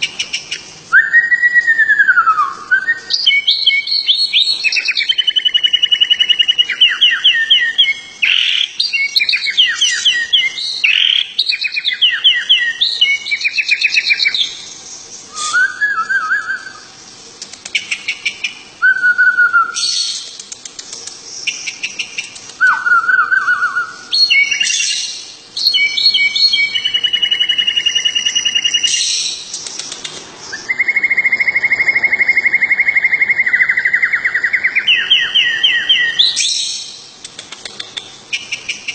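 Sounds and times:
songbird trilling and chattering: 2.9 - 15.5, 19.8 - 38.9
short whistled bird notes: 15.3 - 16.9.

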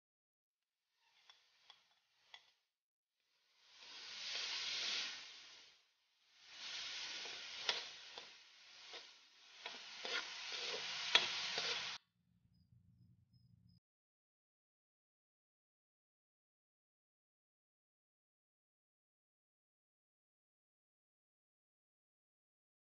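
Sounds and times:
food sizzling in a wok: 1.0 - 2.6, 3.3 - 12.0.

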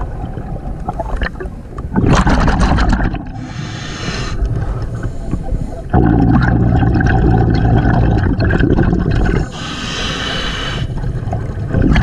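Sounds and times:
exhaled air bubbling: 0.0 - 12.0
regulator inhalation hiss: 3.4 - 5.3, 9.5 - 11.0.

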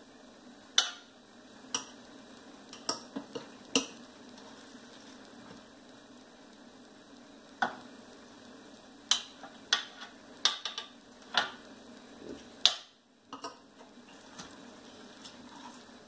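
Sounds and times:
metal tongs clacking on pans: 12.6 - 13.6.

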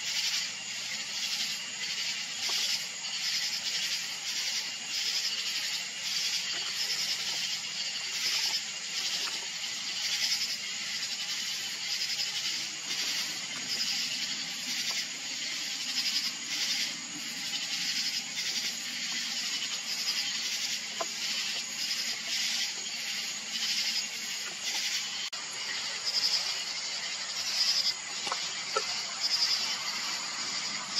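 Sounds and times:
night insects chirping: 0.0 - 30.9.

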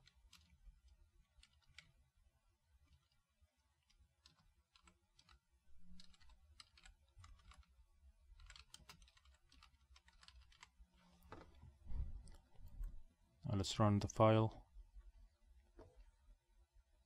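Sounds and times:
typing on computer keyboard: 0.0 - 0.6, 1.3 - 1.9, 3.8 - 7.8, 8.4 - 10.8.

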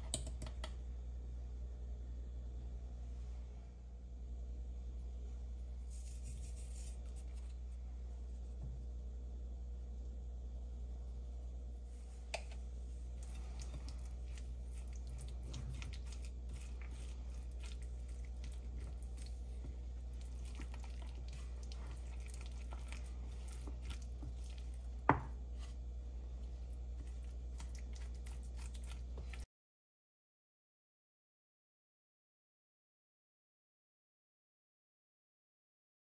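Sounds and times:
steady low hum: 0.0 - 29.5
spoon stirring thick mayonnaise: 5.9 - 7.6, 10.8 - 29.4.

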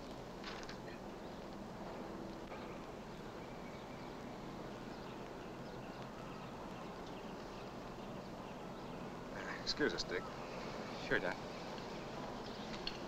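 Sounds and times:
film soundtrack hiss and hum: 0.0 - 13.0
faint high chirps: 2.5 - 11.1.

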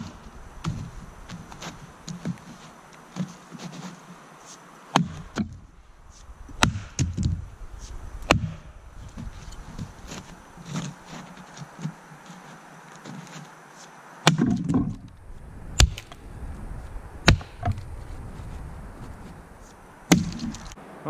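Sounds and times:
axe chopping into a log: 4.9 - 5.6, 6.5 - 7.4, 8.3 - 8.7, 14.2 - 15.0, 15.8 - 16.1, 17.2 - 17.8, 20.1 - 20.7.

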